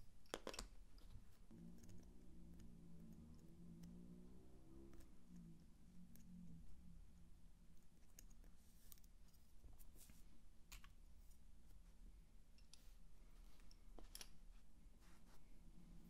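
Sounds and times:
wooden bobbins clicking: 0.0 - 2.0
low background hum: 0.0 - 16.0.

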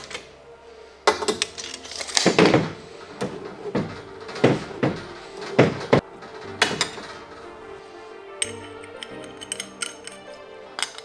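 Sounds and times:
tools clicking and knocking: 8.4 - 11.0.

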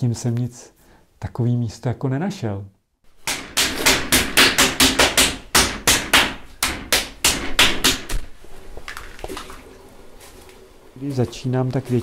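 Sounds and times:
hand tool beating clay: 3.2 - 8.3.

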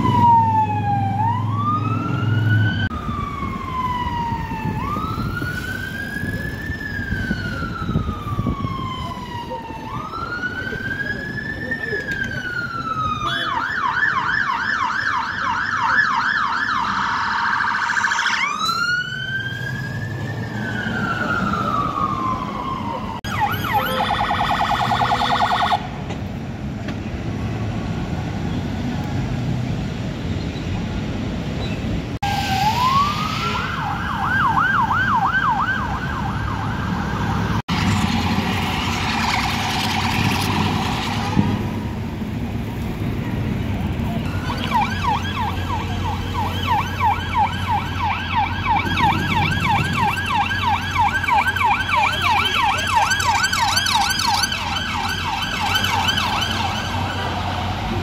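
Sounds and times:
emergency siren yelp: 0.0 - 26.0, 32.2 - 38.2, 38.8 - 58.0
fainter siren: 0.0 - 26.0, 32.2 - 38.1, 44.1 - 58.0
siren long wail: 0.0 - 26.0, 32.2 - 38.2, 44.1 - 58.0
city traffic: 0.0 - 58.0
fast siren warble: 44.2 - 57.7.

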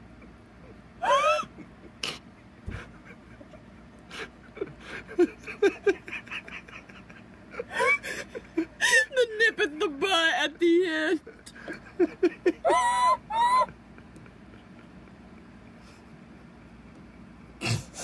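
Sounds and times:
huskies whining and yowling: 12.6 - 13.7.

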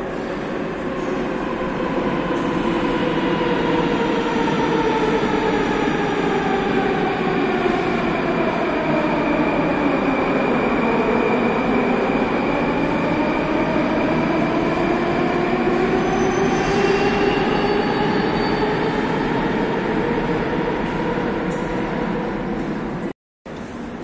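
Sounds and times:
train rumbling through station: 0.0 - 24.0
high wheel squeal: 16.0 - 18.8.

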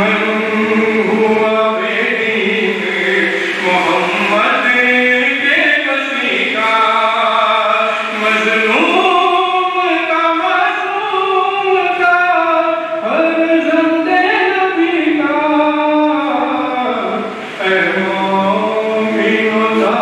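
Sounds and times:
voices chanting a mourning lament: 0.0 - 20.0.

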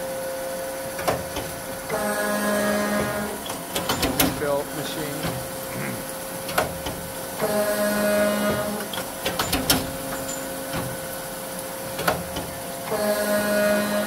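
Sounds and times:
machine hum: 0.0 - 14.0
clamp clicks and clanks: 3.5 - 4.4, 9.0 - 11.0.

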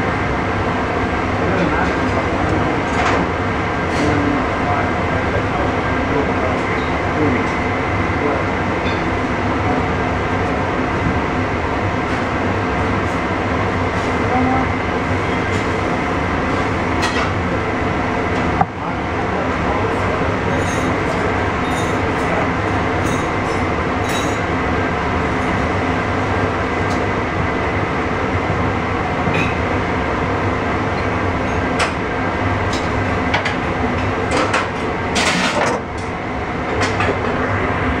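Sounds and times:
kitchen machine hum: 0.0 - 38.0.

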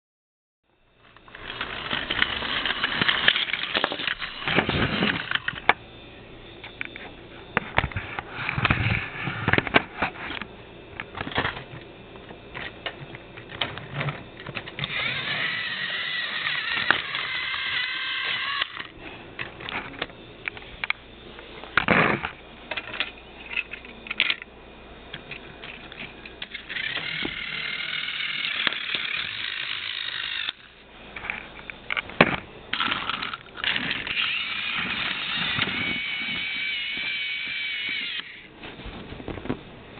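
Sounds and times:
high wavering whine: 0.7 - 39.9
toy trains clattering on plastic track: 1.0 - 5.7, 13.5 - 18.9, 25.6 - 31.4, 32.7 - 38.4.

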